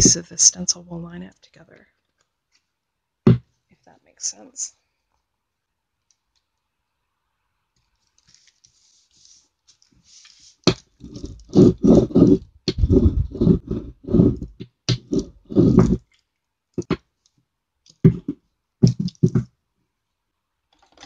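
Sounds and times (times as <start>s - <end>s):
soft paper rustle: 7.8s - 10.7s
rubber brayer rolling over paper: 8.8s - 16.1s, 18.0s - 19.5s.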